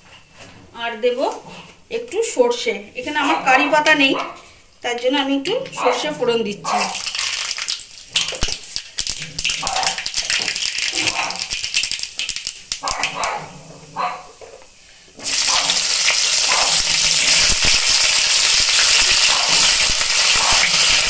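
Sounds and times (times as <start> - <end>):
dog barking: 3.4 - 4.4, 5.8 - 7.0, 9.6 - 10.0, 11.0 - 11.5, 12.8 - 14.3, 15.5 - 15.8, 16.4 - 16.9, 19.3 - 19.6, 20.3 - 20.7
seeds crackling in hot oil: 6.7 - 13.7, 14.3 - 21.0
vegetables sizzling in oil: 6.8 - 13.4, 14.3 - 21.0.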